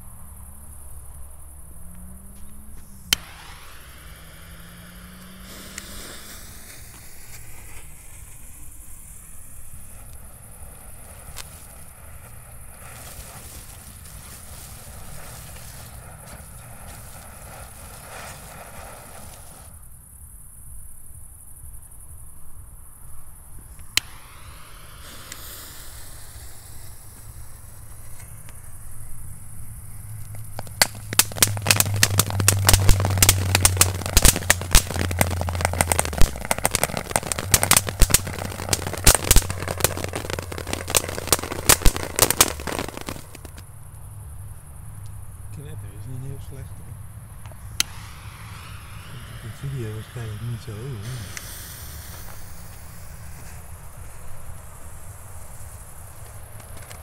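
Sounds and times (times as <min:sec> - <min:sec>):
firework crackling: 0:01.2 - 0:20.2, 0:23.4 - 0:44.2, 0:46.0 - 0:57.0
firework pop: 0:01.9 - 0:08.5, 0:23.7 - 0:27.4, 0:30.3 - 0:43.6, 0:47.5 - 0:50.2, 0:51.0 - 0:53.7.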